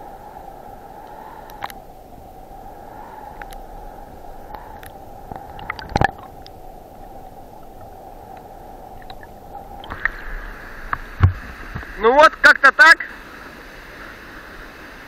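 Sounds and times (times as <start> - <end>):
underwater river current rushing: 0.0 - 15.0
faint clicks: 1.0 - 1.8, 3.3 - 3.7, 4.5 - 6.6, 7.6 - 10.2.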